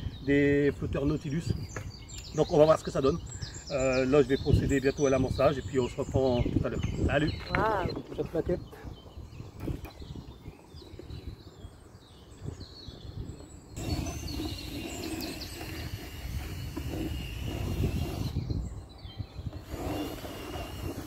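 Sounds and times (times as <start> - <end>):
wind rumble on microphone: 0.0 - 21.0.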